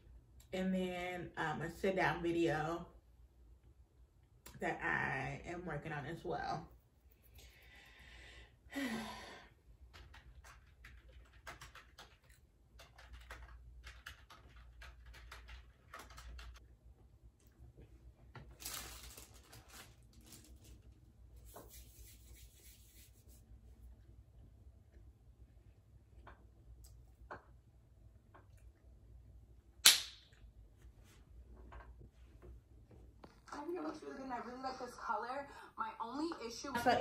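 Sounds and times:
computer keyboard and mouse clicks: 0:09.9 - 0:16.6.

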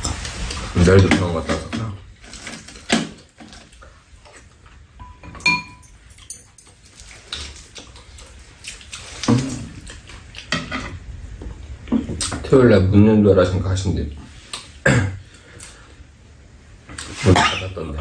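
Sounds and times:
soft chewing: 0:06.6 - 0:12.4.

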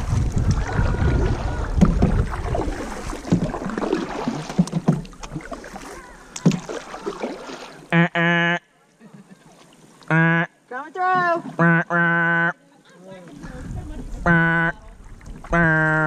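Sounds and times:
wind rumble on microphone: 0:00.0 - 0:03.7, 0:13.4 - 0:15.7
paddle strokes splashing: 0:00.0 - 0:08.5, 0:09.1 - 0:10.2, 0:13.1 - 0:16.0
knocks against hull: 0:00.5 - 0:05.6, 0:06.4 - 0:06.8.

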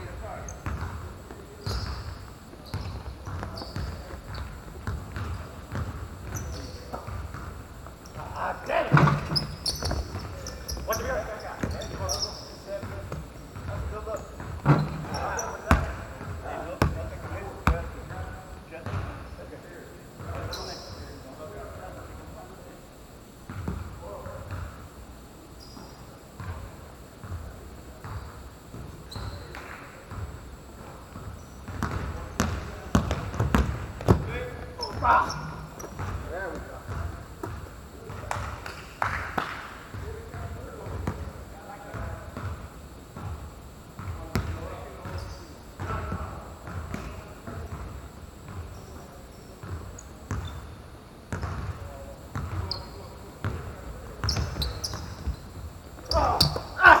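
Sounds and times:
basketball bouncing on gym floor: 0:00.5 - 0:19.2, 0:23.5 - 0:24.8, 0:31.1 - 0:35.2, 0:41.9 - 0:48.8, 0:51.3 - 0:52.8, 0:53.4 - 0:56.8
basketball bouncing: 0:00.6 - 0:02.1, 0:02.7 - 0:07.6, 0:31.2 - 0:34.3, 0:51.3 - 0:52.7
shoe squeaks: 0:01.6 - 0:07.2, 0:08.9 - 0:12.8, 0:14.1 - 0:15.7, 0:20.3 - 0:21.2, 0:25.5 - 0:26.2, 0:29.0 - 0:29.5, 0:34.8 - 0:36.1, 0:45.1 - 0:45.6, 0:48.7 - 0:50.8, 0:52.5 - 0:53.2, 0:54.2 - 0:56.8.

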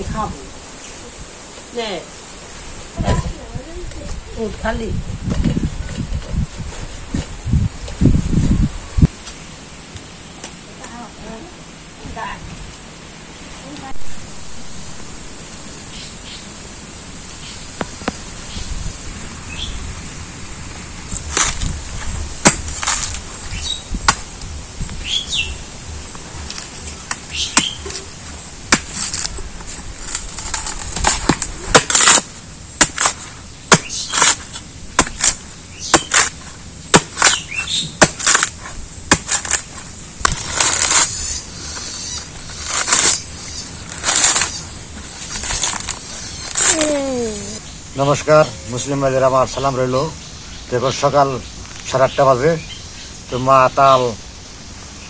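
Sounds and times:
birds chirping: 0:14.9 - 0:20.4, 0:21.7 - 0:28.7, 0:33.2 - 0:39.2, 0:40.4 - 0:55.0
machete chopping coconut husk: 0:21.2 - 0:21.7, 0:22.4 - 0:23.2, 0:24.0 - 0:24.3, 0:27.1 - 0:28.1, 0:28.7 - 0:29.4, 0:30.1 - 0:43.3.

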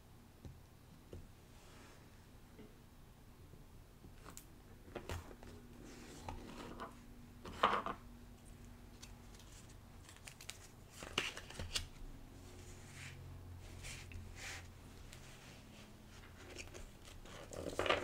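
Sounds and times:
paper rustles of cards: 0:09.0 - 0:12.0, 0:16.2 - 0:18.0.

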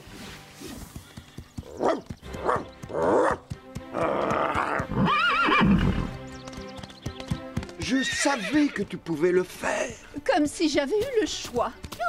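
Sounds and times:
background music: 0:00.0 - 0:12.0
quavering horse whinny: 0:04.0 - 0:06.1, 0:07.8 - 0:08.8.

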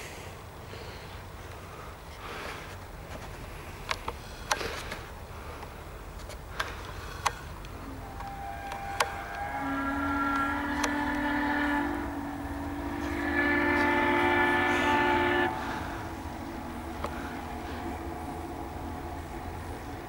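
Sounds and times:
train rumble: 0:00.0 - 0:20.0
steam locomotive whistle: 0:07.8 - 0:20.0.

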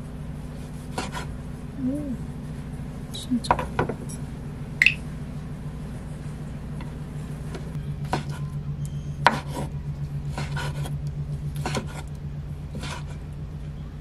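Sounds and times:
steady low hum: 0:00.0 - 0:14.0
knife slicing on wooden board: 0:00.9 - 0:01.3, 0:10.3 - 0:11.0, 0:11.6 - 0:12.1, 0:12.7 - 0:13.2.

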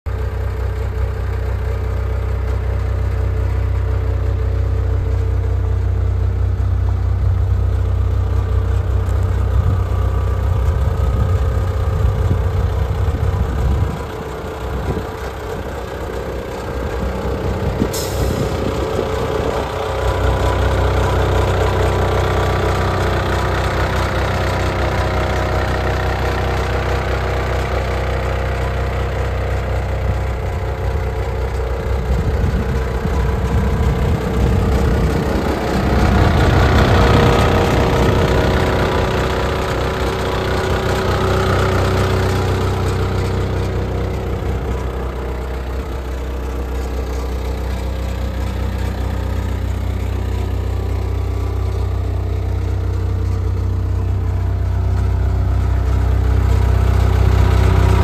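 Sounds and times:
diesel engine idling: 0:00.1 - 0:58.0.

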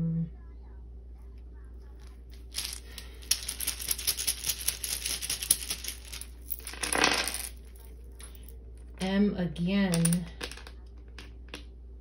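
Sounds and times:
wooden tiles rattling: 0:02.3 - 0:07.8.

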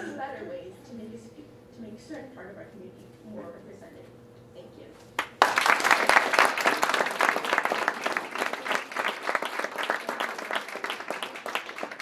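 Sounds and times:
audience applauding: 0:05.2 - 0:12.0.

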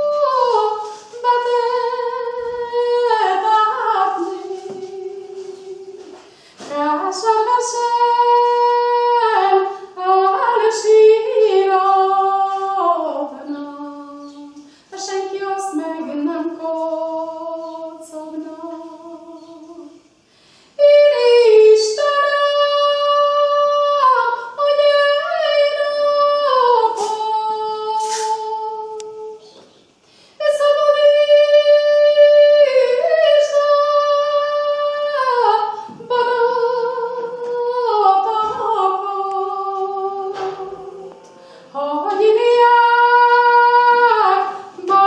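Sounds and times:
woman singing unaccompanied: 0:00.0 - 0:20.2, 0:20.8 - 0:29.6, 0:30.4 - 0:45.0.

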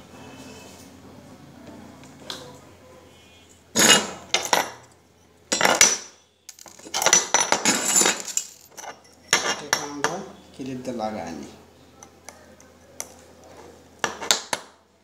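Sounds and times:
metal parts clattering: 0:03.8 - 0:04.8, 0:05.5 - 0:09.7.

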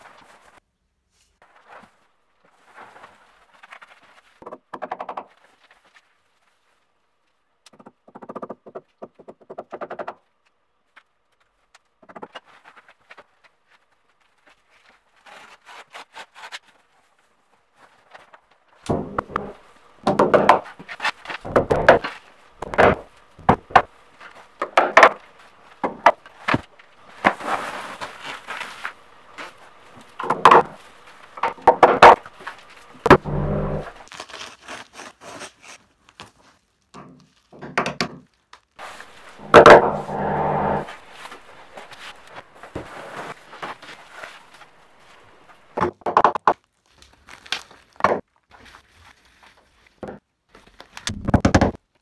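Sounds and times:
insulation sheet knocking and rustling: 0:18.9 - 0:34.0.

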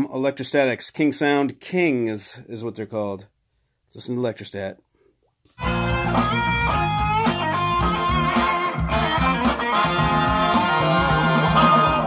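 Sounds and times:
band music with electric guitar: 0:05.6 - 0:12.0.

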